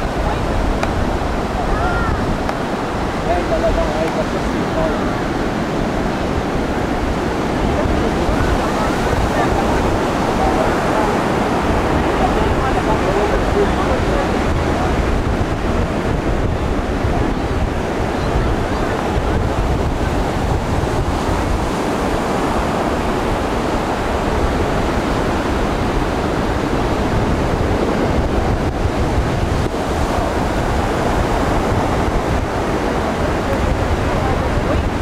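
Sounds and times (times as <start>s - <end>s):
ocean surf washing ashore: 0.0s - 35.0s
wind buffeting microphone: 0.0s - 35.0s.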